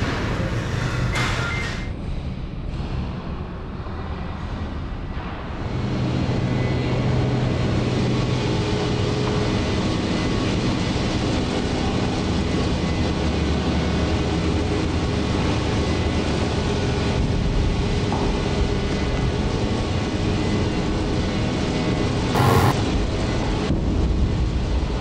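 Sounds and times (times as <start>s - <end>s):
factory machinery drone: 0.0s - 17.7s, 22.4s - 22.8s
low hum: 22.4s - 22.8s.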